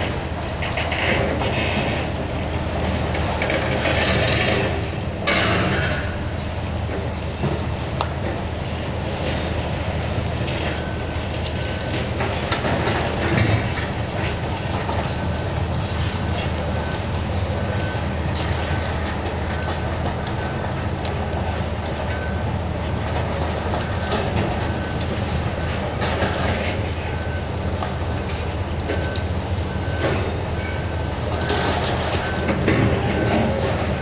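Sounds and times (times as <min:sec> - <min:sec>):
diesel excavators running: 0:00.0 - 0:34.0
machine alarm beeping: 0:10.6 - 0:13.2, 0:14.7 - 0:22.6, 0:23.5 - 0:34.0.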